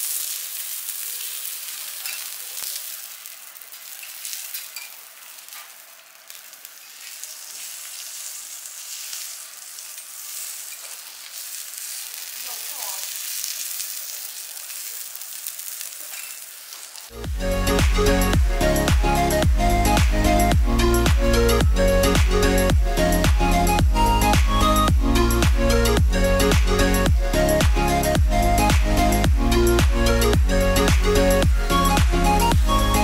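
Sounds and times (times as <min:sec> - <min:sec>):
meat sizzling on a griddle: 0:00.0 - 0:17.8.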